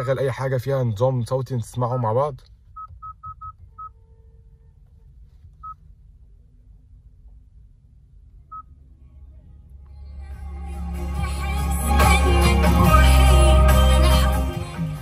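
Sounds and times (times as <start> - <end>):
faint low hum: 1.0 - 11.8
touchscreen key-press beeps: 2.8 - 3.6.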